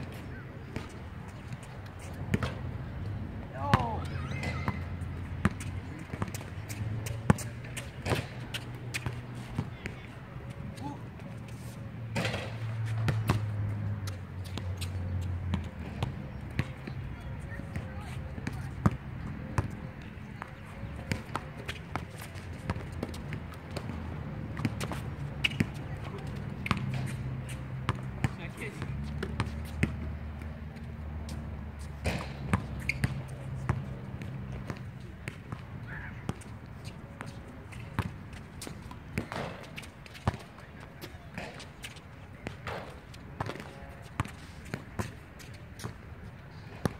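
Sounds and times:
basketball bouncing: 3.6 - 9.7, 12.2 - 14.7, 26.6 - 27.2, 27.9 - 30.0, 32.0 - 35.6, 38.0 - 40.5, 42.4 - 44.3
basketball bouncing on hard court: 32.0 - 35.6.

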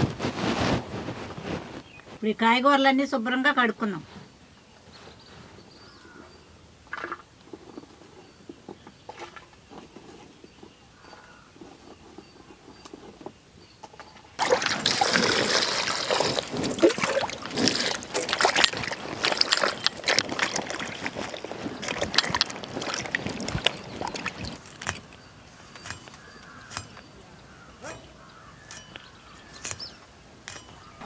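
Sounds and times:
water sloshing and splashing: 14.4 - 31.0.

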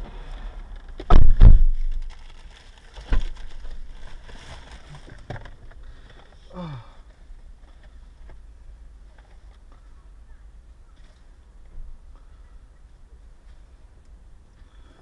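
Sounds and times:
heavy thumps: 1.0 - 2.1.

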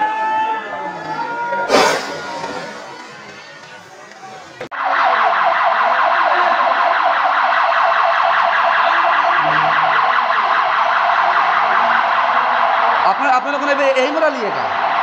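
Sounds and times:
warbling electronic alarm siren: 4.7 - 13.7.

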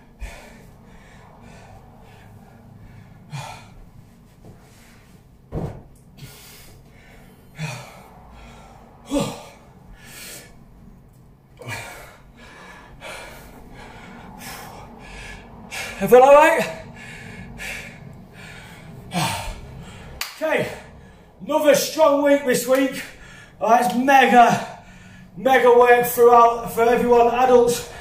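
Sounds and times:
man breathing hard and gasping: 0.0 - 5.2, 6.1 - 21.4, 23.0 - 23.6, 24.6 - 25.4
man groaning: 9.0 - 9.7.

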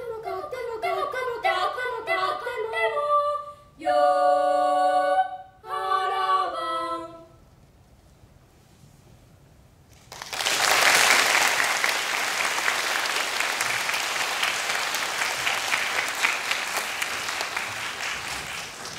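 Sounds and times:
audience applause: 10.0 - 18.9.

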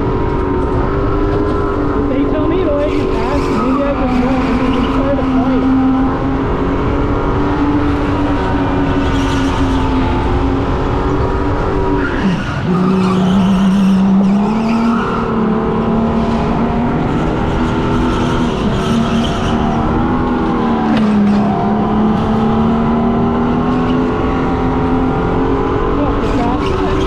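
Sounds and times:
tires squealing and skidding: 2.5 - 5.7, 11.9 - 15.6, 17.2 - 22.0.

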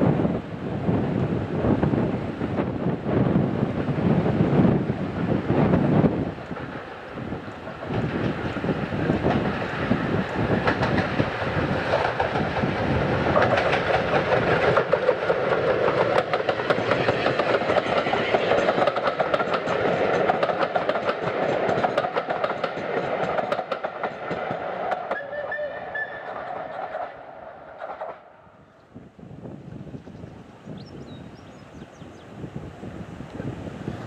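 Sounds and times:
steam locomotive passing: 0.0 - 34.0
wheels clicking over rail joints: 6.0 - 28.3.

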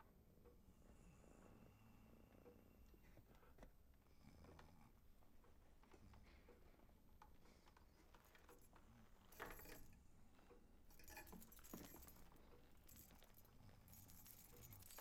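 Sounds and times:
keys jangling: 9.2 - 10.0, 10.9 - 15.0.

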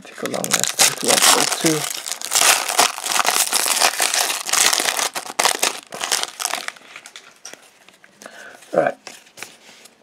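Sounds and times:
foil pack crinkling: 0.2 - 7.2.

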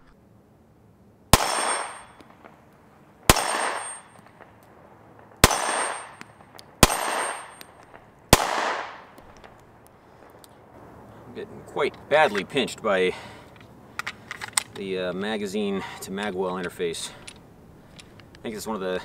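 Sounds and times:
pistol gunshots with echo: 1.3 - 2.5, 3.3 - 4.5, 5.4 - 9.2.

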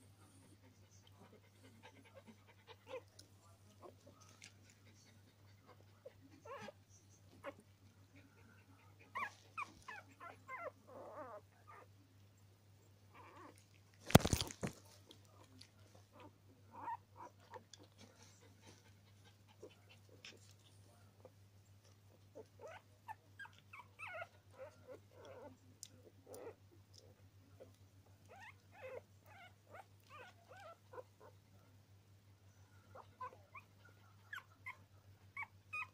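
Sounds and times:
puppies squeaking: 22.6 - 25.5, 35.4 - 35.9.

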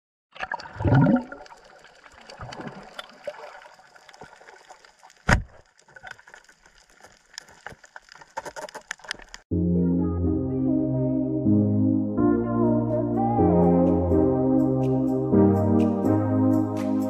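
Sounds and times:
bubbly underwater gurgle: 0.3 - 7.4
small crackling clicks: 3.9 - 9.5.

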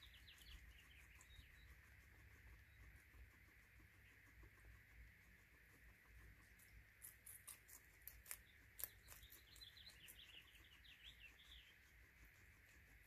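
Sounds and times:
guinea pig crunching pellets: 0.0 - 13.0
faint high chirps: 8.3 - 12.0.

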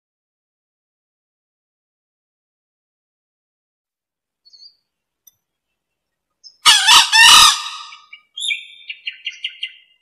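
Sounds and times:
high chirping calls: 4.4 - 4.9, 5.6 - 10.0
junglefowl crowing: 6.6 - 8.2.

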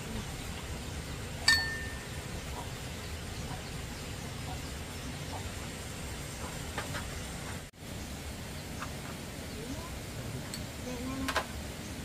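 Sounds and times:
low background noise: 0.0 - 12.0
metallic clink: 1.4 - 2.1.

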